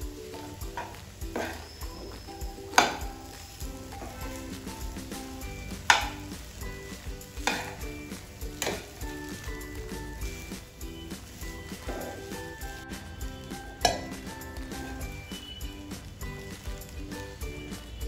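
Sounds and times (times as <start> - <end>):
rice sizzling in a pan: 0.0 - 18.0
spoon clinking against pan: 0.3 - 12.3, 13.7 - 15.7.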